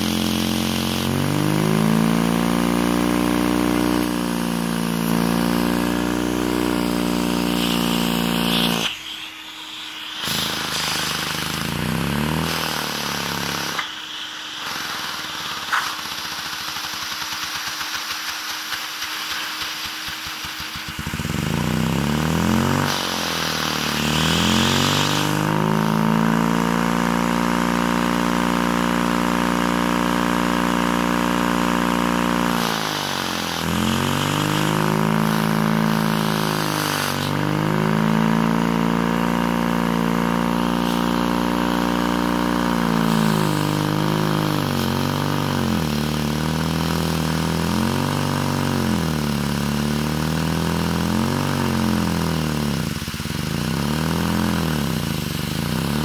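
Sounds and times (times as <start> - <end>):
turbine whirring siren-like: 0.0 - 39.2
vacuum cleaner running: 0.0 - 56.0.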